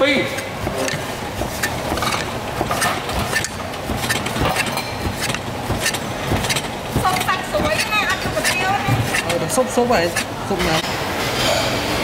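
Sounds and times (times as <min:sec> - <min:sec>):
restaurant background din: 0:00.0 - 0:12.0
sharp clicks and knocks: 0:00.3 - 0:09.5.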